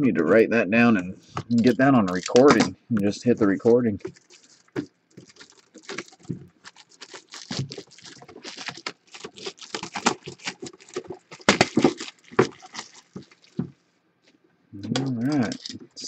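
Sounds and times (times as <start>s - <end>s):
plastic wrap crinkling: 1.4s - 2.7s, 3.5s - 13.8s, 15.0s - 16.0s.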